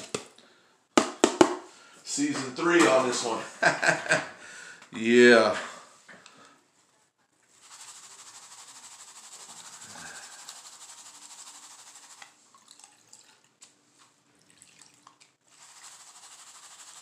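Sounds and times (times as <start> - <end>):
small splashes and clicks: 12.2 - 15.4
water sloshing in a gold pan: 12.4 - 13.6, 14.4 - 16.0.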